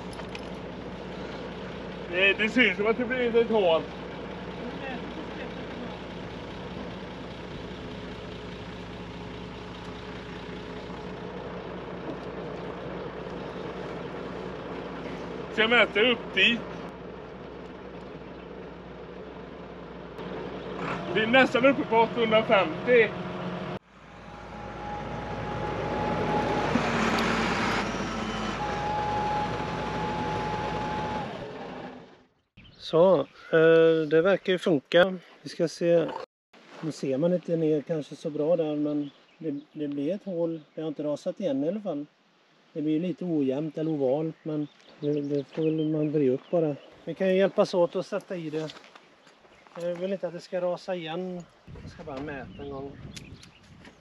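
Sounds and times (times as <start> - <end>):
diesel excavator engine idling: 0.0 - 32.5.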